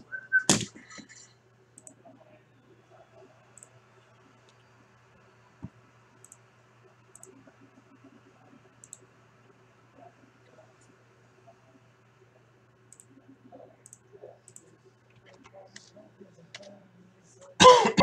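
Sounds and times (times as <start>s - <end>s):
steady low hum: 0.0s - 18.0s
computer mouse clicks: 1.8s - 2.0s, 5.6s - 6.4s, 7.1s - 7.5s, 8.8s - 9.1s, 12.9s - 13.2s, 13.8s - 15.6s.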